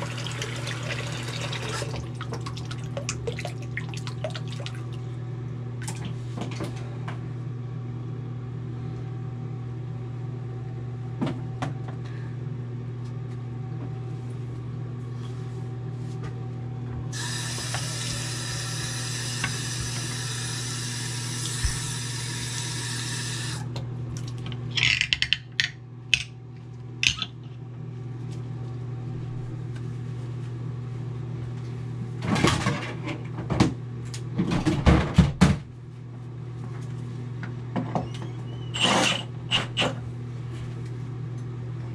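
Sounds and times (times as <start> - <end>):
faucet running into sink: 0.0 - 4.6, 17.2 - 23.6
steady low hum: 0.0 - 32.2.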